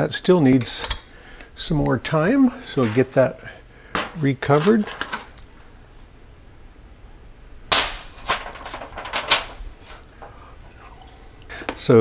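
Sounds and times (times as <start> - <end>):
foil lid crinkling: 4.4 - 5.4, 8.1 - 10.0.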